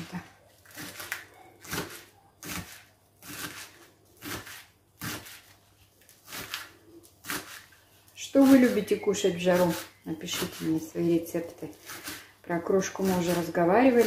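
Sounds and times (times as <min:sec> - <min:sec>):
knife slicing on cutting board: 0:00.6 - 0:07.7.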